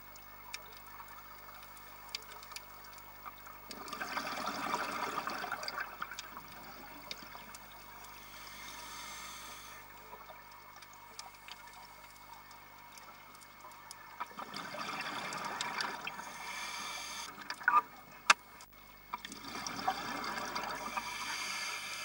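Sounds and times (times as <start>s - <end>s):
faint clicks: 0.1s - 4.0s, 5.7s - 14.4s
gurgling exhaled bubbles: 3.6s - 8.2s, 13.4s - 18.2s, 19.1s - 21.8s
diver breathing through regulator: 8.0s - 9.9s, 16.0s - 17.4s, 20.8s - 22.0s.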